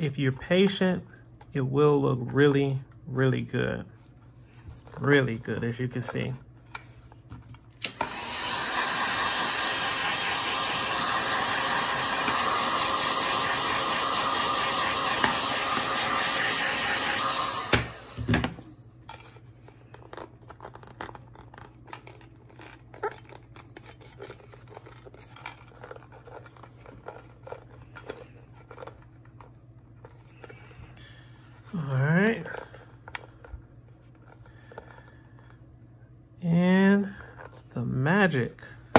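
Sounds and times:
heat gun blowing: 7.8s - 18.8s.

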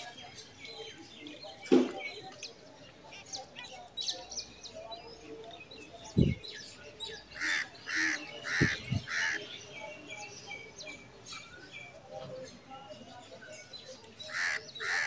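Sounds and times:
small birds chirping: 0.0s - 15.0s
larger bird calling: 7.3s - 9.5s, 14.3s - 15.0s.

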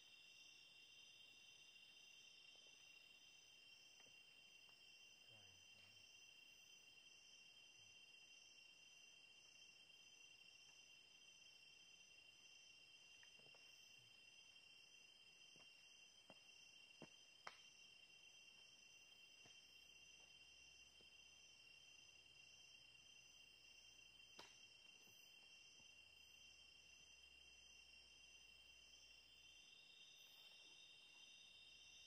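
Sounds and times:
insect trill: 0.0s - 32.0s
pulsing insect call: 0.0s - 32.0s.

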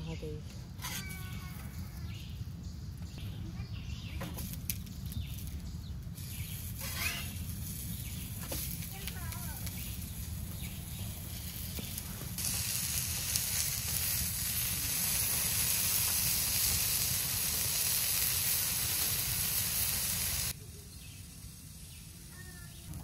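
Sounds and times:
pancakes sizzling in skillet: 6.2s - 23.0s.

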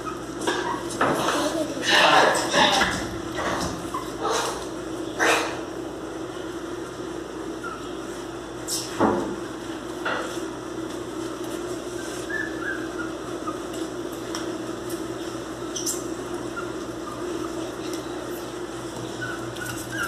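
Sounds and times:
puppies scuffling on tiled floor: 6.4s - 20.0s.

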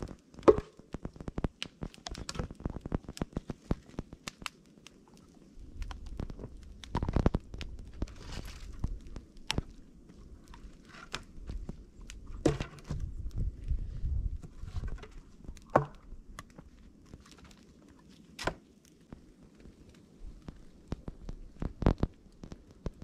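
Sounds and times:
twigs snapping: 0.0s - 13.4s, 20.4s - 23.0s
crunching in snow: 6.1s - 11.9s.

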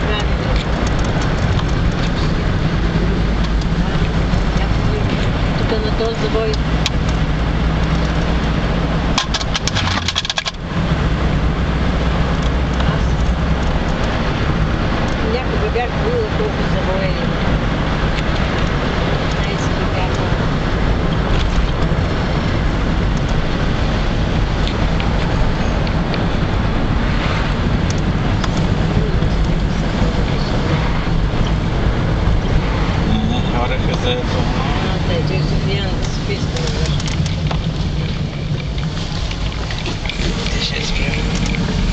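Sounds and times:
car engine and road hum: 0.0s - 41.9s.

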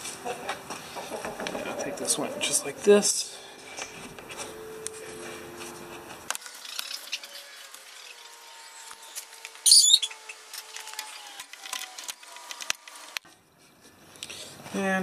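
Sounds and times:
tools clicking and scraping: 6.2s - 8.2s.

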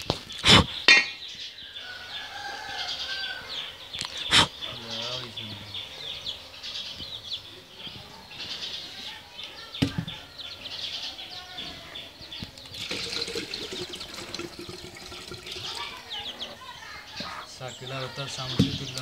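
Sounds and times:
small birds chirping: 0.0s - 19.0s
water pouring into plastic cup: 12.6s - 16.2s.

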